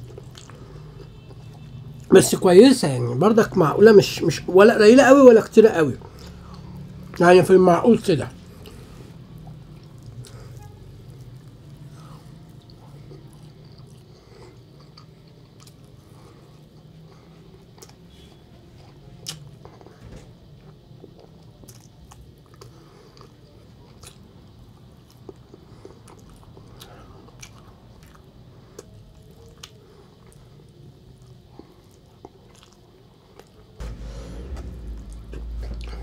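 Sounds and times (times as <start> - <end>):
person chewing food: 0.0 - 2.1, 8.6 - 18.0, 18.8 - 19.9, 20.6 - 33.8
steady low hum: 32.8 - 36.0.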